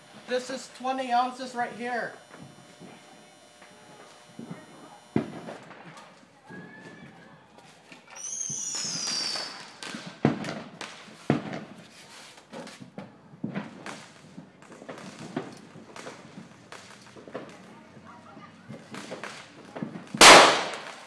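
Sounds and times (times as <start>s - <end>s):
firecracker bangs: 0.0s - 6.0s, 8.2s - 11.8s, 13.4s - 17.6s, 18.8s - 21.0s
firework whistle falling in pitch: 8.1s - 9.7s.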